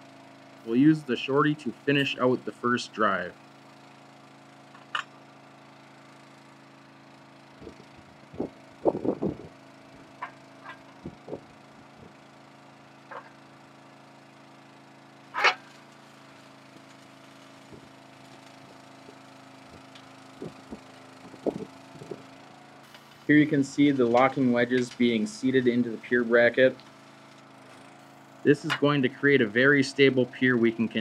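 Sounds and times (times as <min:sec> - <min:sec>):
hydraulic pump humming: 0:00.2 - 0:31.0
knocks and clanks from rig: 0:20.4 - 0:22.3.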